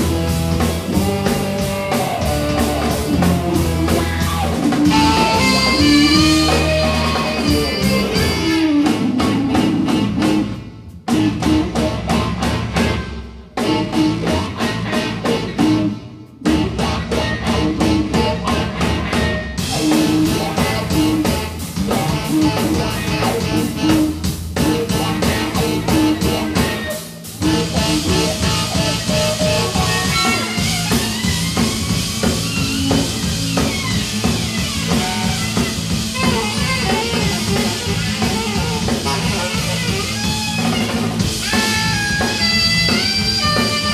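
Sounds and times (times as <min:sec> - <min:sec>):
rock band playing: 0:00.0 - 0:43.9.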